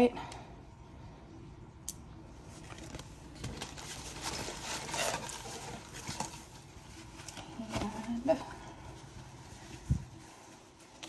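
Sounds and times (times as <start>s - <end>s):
cardboard packaging rustling: 2.4s - 11.0s.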